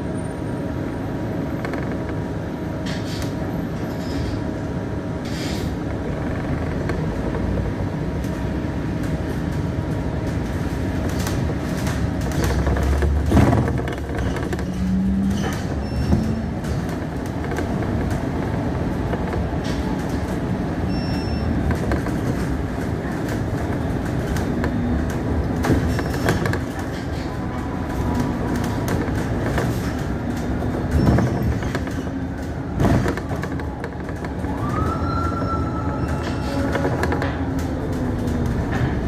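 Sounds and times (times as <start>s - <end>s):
bus engine and road rumble: 0.0s - 39.0s
rattles and knocks: 9.0s - 20.4s, 21.6s - 27.3s, 28.0s - 34.9s.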